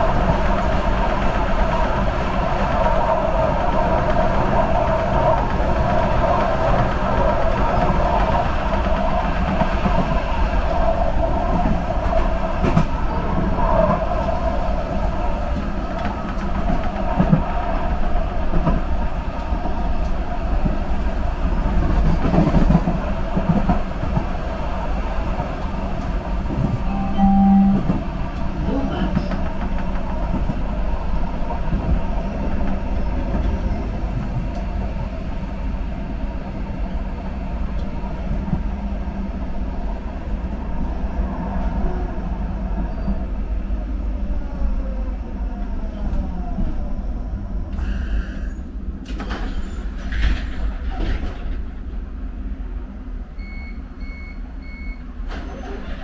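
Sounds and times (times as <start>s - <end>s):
subway train rumbling: 0.0s - 56.0s
door signal beeps: 26.9s - 28.0s, 53.4s - 55.0s.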